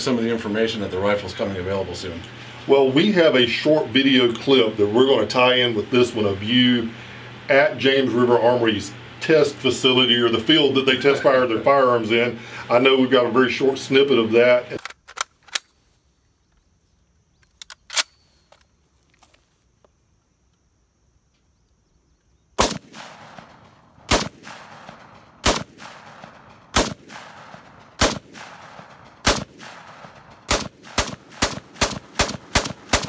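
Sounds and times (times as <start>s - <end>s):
rifle shots with echo: 22.6s - 33.0s.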